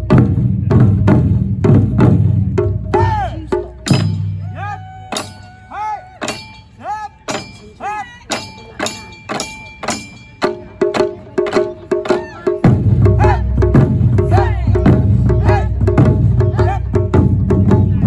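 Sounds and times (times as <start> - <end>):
deep drum strikes: 0.0 - 4.4, 8.3 - 18.0
people shouting: 3.0 - 9.1, 12.1 - 13.6, 14.3 - 14.8, 15.4 - 15.8, 16.5 - 16.9
drum sticks clicking: 6.2 - 10.6.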